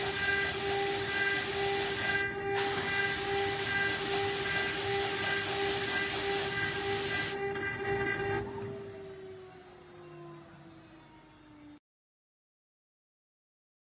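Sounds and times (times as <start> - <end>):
loud hiss: 0.0 - 7.4
router spindle whining: 0.0 - 11.8.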